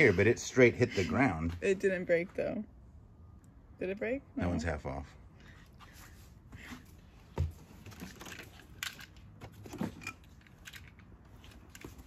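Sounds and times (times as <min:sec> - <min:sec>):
small toys clicking and knocking: 0:07.9 - 0:12.0.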